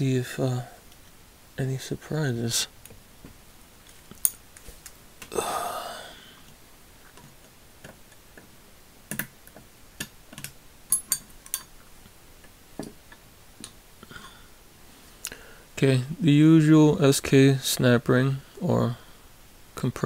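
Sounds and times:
small sharp metal clicks: 0:09.1 - 0:11.8.

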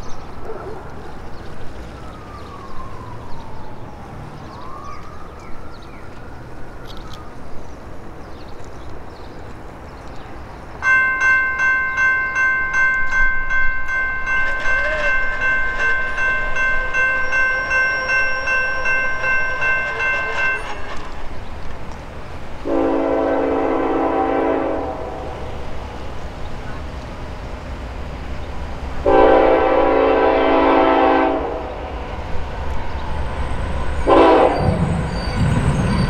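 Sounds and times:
outdoor background: 0:00.0 - 0:36.0
crossing signal bell ringing: 0:10.8 - 0:21.3.

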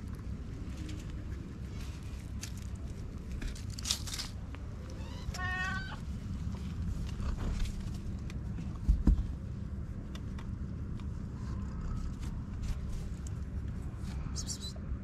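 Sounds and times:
rustling: 0:00.0 - 0:14.2
kitten mewing: 0:04.8 - 0:06.0.

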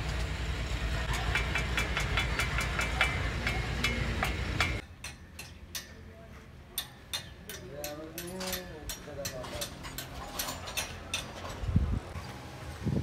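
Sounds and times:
truck engine running: 0:00.0 - 0:04.8
metallic ticking: 0:01.1 - 0:06.1.

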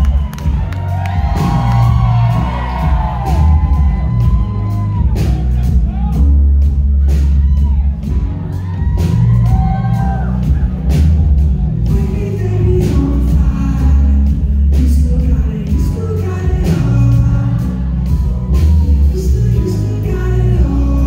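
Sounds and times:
drum hits: 0:00.0 - 0:13.6
heavy bass line: 0:00.0 - 0:21.0
live rock band: 0:00.0 - 0:21.0
person singing: 0:09.0 - 0:21.0.

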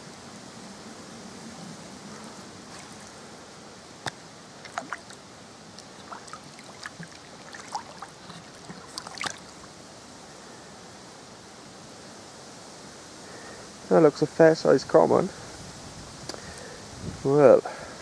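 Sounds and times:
steady hiss: 0:00.0 - 0:18.0
fish splashing in net: 0:04.0 - 0:05.2, 0:05.8 - 0:09.7.

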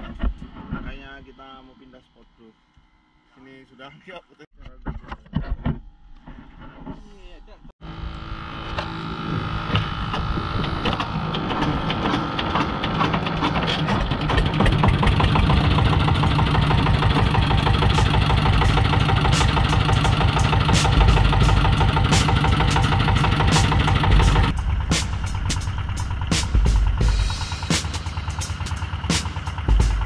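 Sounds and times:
boat engine running: 0:07.8 - 0:30.0.

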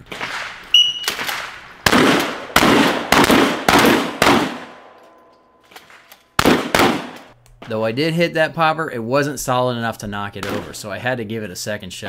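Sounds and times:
shotgun firing: 0:00.1 - 0:04.9, 0:05.8 - 0:07.4.

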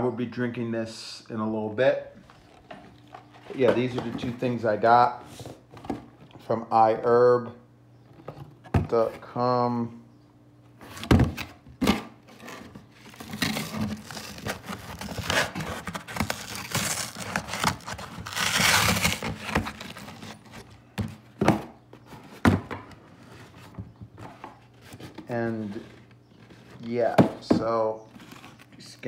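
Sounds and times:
cardboard rustling and scraping: 0:02.2 - 0:06.5, 0:10.7 - 0:29.0.

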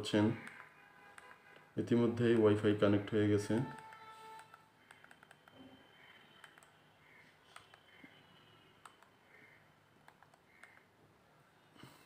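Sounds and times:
phone keypad clicks: 0:03.7 - 0:05.6, 0:06.4 - 0:06.7, 0:10.0 - 0:10.9.

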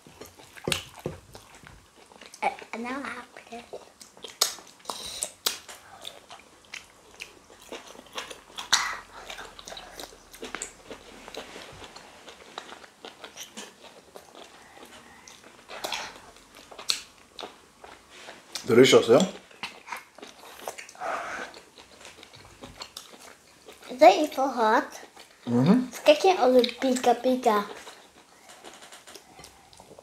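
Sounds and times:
chewing: 0:00.0 - 0:24.0, 0:24.9 - 0:30.0
lip smacks: 0:03.8 - 0:10.8, 0:13.1 - 0:17.6.

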